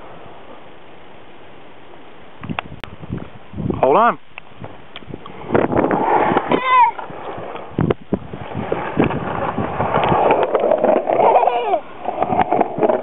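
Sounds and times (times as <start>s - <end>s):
skateboard wheels rolling on concrete: 0.0s - 13.0s
child's short cry: 6.5s - 7.0s
skateboard clicks: 8.7s - 13.0s.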